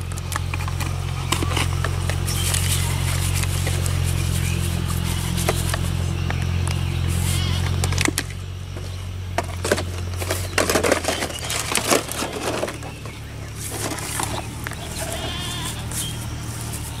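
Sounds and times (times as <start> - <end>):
low steady hum: 0.0 - 17.0
plastic knocks and crackles: 7.7 - 15.4.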